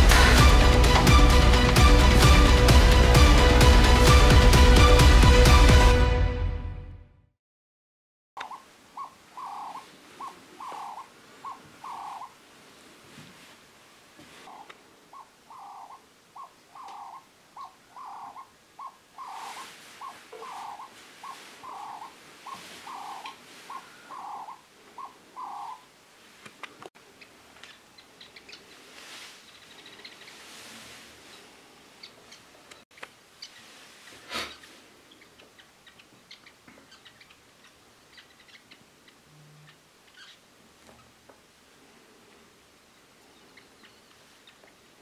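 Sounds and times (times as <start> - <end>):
dove cooing: 8.4 - 12.3, 14.5 - 25.8
small birds chirping: 8.4 - 12.4, 14.3 - 25.9, 26.6 - 41.2, 42.3 - 45.0.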